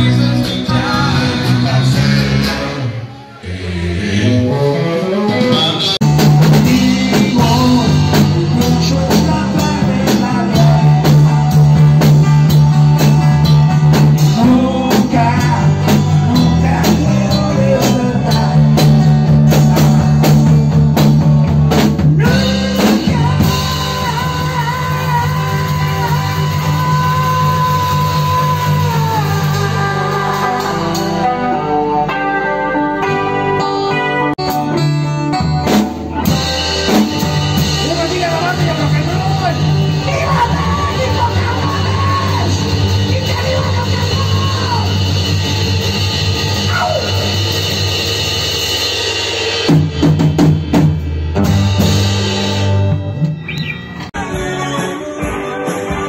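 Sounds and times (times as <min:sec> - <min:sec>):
rock band playing live: 0:00.0 - 0:03.4, 0:04.5 - 0:56.0
man singing: 0:00.0 - 0:20.4, 0:22.2 - 0:31.8, 0:37.1 - 0:45.6, 0:54.2 - 0:56.0.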